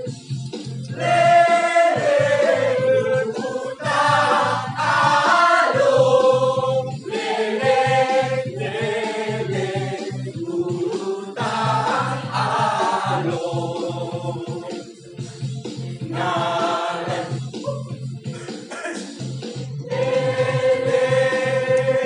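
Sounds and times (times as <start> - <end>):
low musical accompaniment: 0.0 - 22.0
choir singing: 0.9 - 14.8, 16.0 - 17.4, 19.9 - 22.0.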